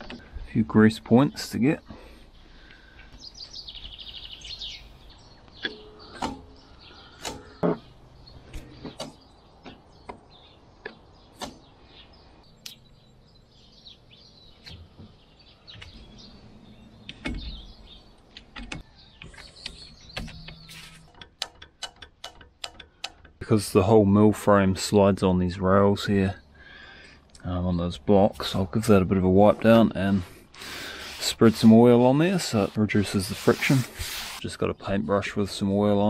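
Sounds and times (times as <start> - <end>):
grease gun clicks and knocks: 18.4 - 23.4.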